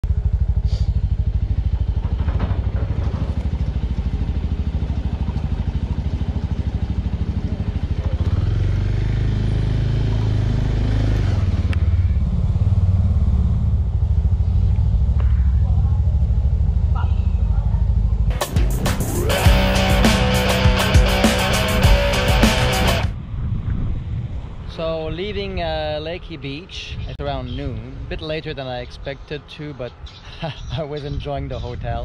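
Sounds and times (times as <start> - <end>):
motorcycle engine running slowly: 0.0 - 10.6, 11.5 - 23.0.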